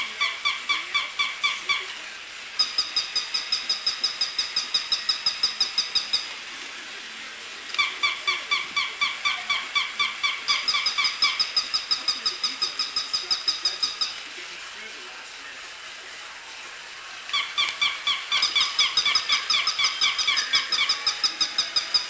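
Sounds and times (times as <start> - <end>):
toy puppies yipping: 7.8 - 14.0, 17.3 - 22.0.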